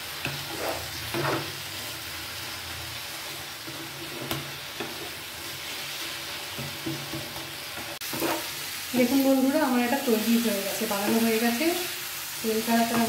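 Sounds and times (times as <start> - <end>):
steady sizzle: 0.0 - 13.0
spatula scraping frying pan: 0.1 - 1.9, 3.2 - 8.7.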